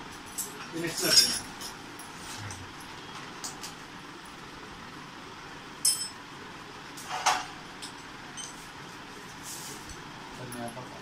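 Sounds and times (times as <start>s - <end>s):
small metal part clinking: 5.8s - 6.2s, 7.8s - 8.6s.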